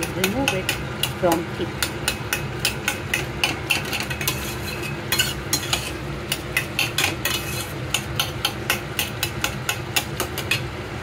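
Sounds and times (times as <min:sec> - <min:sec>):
metal spatula scraping a pan: 0:02.1 - 0:09.2.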